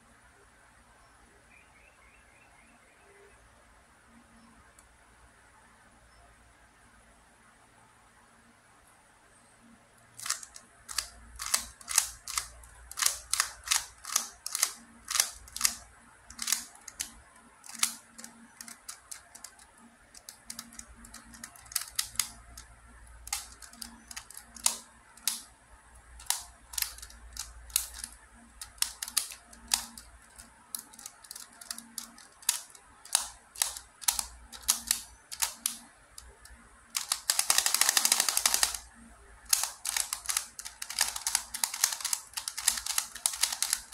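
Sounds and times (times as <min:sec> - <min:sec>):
puzzle plastic clicks and snaps: 0:10.2 - 0:25.5, 0:26.2 - 0:38.9, 0:39.5 - 0:43.9.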